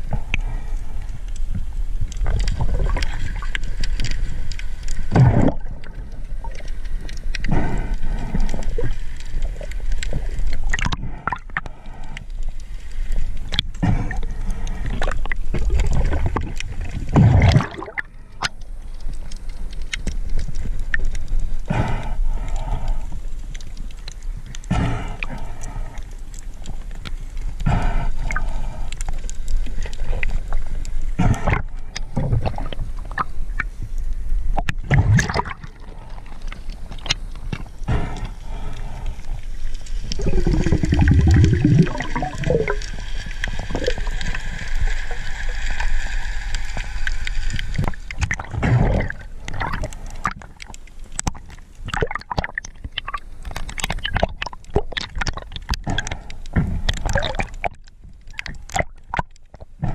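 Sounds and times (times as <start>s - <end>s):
underwater gurgling and sloshing: 0.0s - 59.9s
low bubbling burst: 17.1s - 18.1s, 40.1s - 43.0s.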